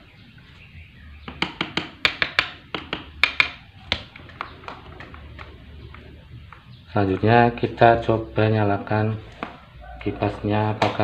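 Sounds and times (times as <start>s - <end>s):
sharp clicks and knocks: 1.3s - 7.3s.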